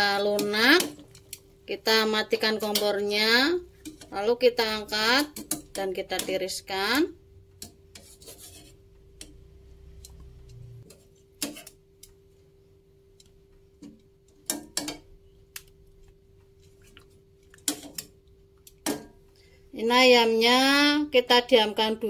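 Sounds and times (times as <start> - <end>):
metal tongs scraping saucepan: 0.0 - 1.4, 2.0 - 6.6, 7.6 - 9.4, 10.0 - 11.8, 17.6 - 18.1
faint steady hum: 8.8 - 21.1.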